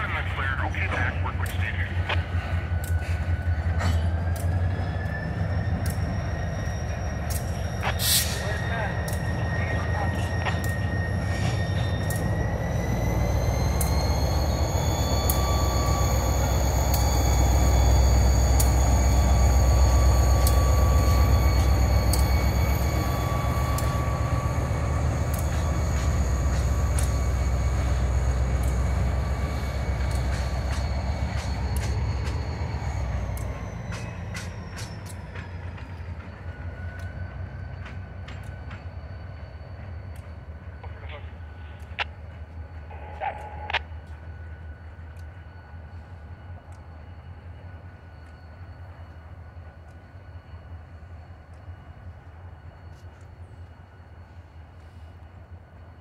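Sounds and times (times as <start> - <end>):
diesel locomotive engine rumble: 0.0 - 56.0
wheels clicking on rails: 1.3 - 40.9.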